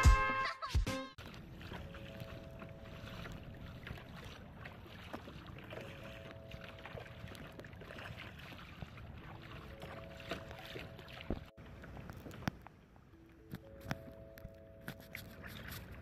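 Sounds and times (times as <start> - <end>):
water washing against hull: 1.2 - 12.7
small splashes and knocks: 1.2 - 12.8.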